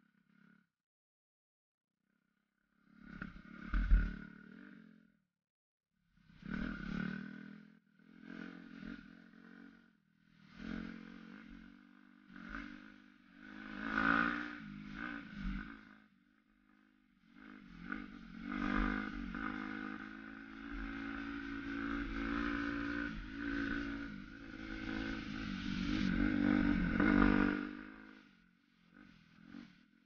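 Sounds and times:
dirt bike engine revving: 13.4 - 15.9, 17.4 - 28.3.

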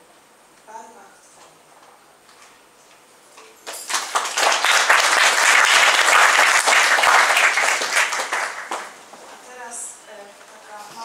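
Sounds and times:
audience applauding: 3.7 - 9.0.

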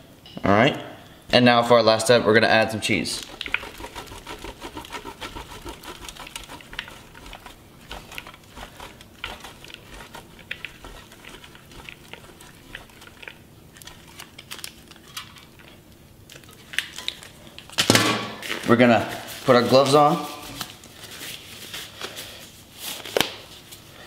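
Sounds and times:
cheese grating on metal grater: 3.2 - 15.0.

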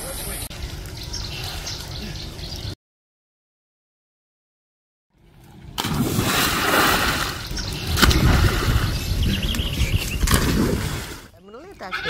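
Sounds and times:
water churning and sloshing: 5.1 - 11.9
sharp water splash: 5.7 - 9.1, 10.1 - 11.3.

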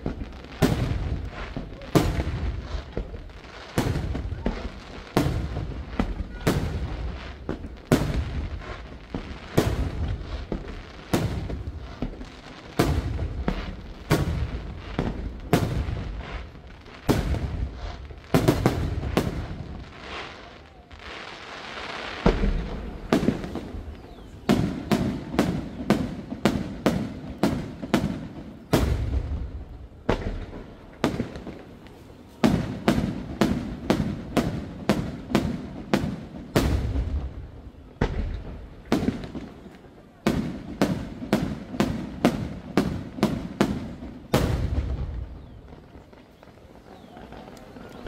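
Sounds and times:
hissing crackle: 0.0 - 37.4.

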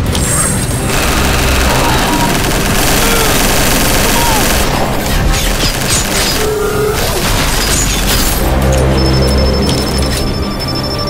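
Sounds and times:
background music: 0.0 - 11.0
heavy booming blasts: 0.6 - 8.6
rapid gunfire: 0.7 - 8.6.

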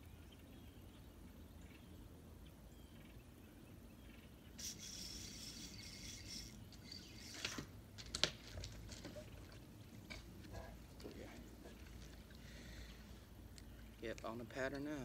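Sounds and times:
fishing reel whirring: 4.6 - 7.7.

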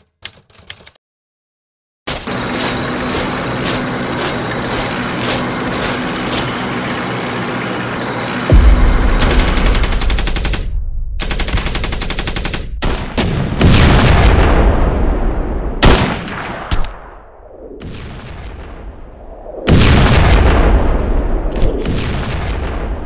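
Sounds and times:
machine-gun bursts: 9.2 - 13.1
single gunshots: 15.7 - 18.8.

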